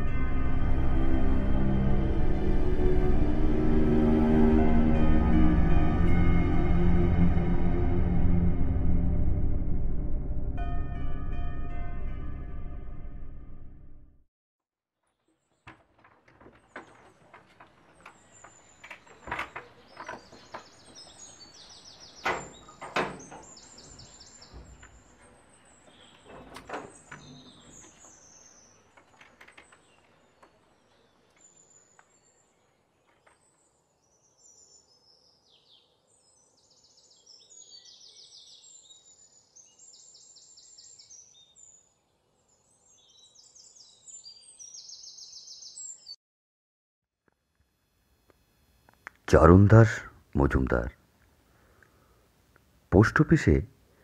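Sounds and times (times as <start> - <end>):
small birds chirping and trilling: 15.1 - 46.2
wooden door knocking and rattling: 15.6 - 21.1, 22.2 - 25.0, 26.2 - 28.1.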